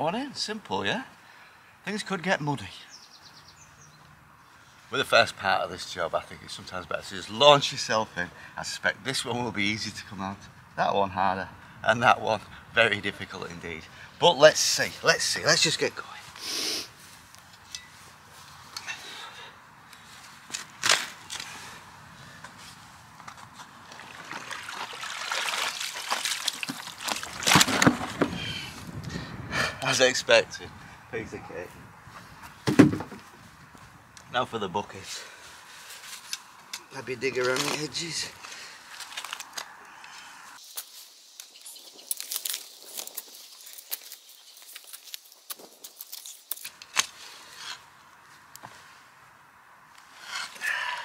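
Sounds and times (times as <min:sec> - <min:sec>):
water pouring: 0:23.8 - 0:28.1
water and mud splashing: 0:23.8 - 0:28.4.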